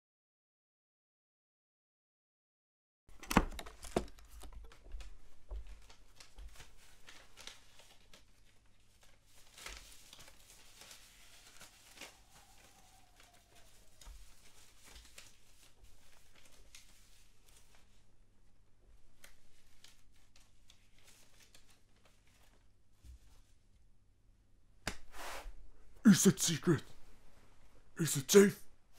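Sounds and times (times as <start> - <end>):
cloth and paper rustling: 3.7 - 23.8.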